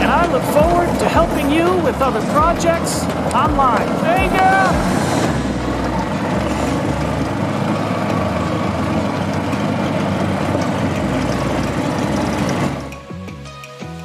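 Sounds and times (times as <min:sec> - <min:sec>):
tyres on gravel: 0:00.0 - 0:13.0
golf cart engine running: 0:00.0 - 0:14.0.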